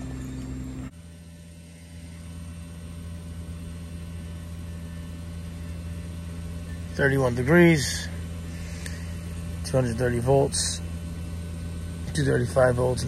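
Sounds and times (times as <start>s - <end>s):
heat pump compressor humming: 0.0s - 13.0s
outdoor fan running: 0.0s - 13.0s.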